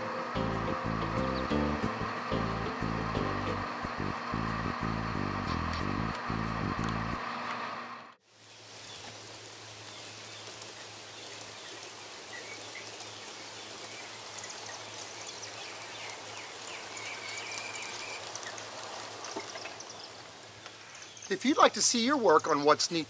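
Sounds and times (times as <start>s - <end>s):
birds chirping: 0.0s - 3.5s, 11.2s - 22.7s
low hum: 0.0s - 8.2s
outdoor hiss: 0.0s - 23.0s.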